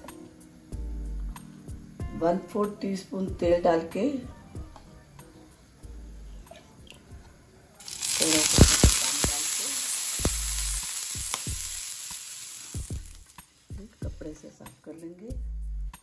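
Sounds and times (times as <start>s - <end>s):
water sizzling on hot griddle: 7.8s - 14.0s.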